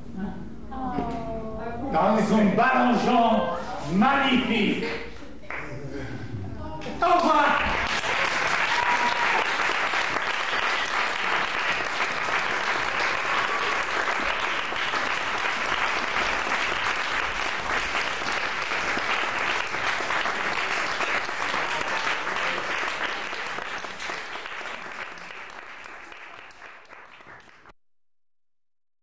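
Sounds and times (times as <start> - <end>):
audience applauding: 7.0 - 27.7.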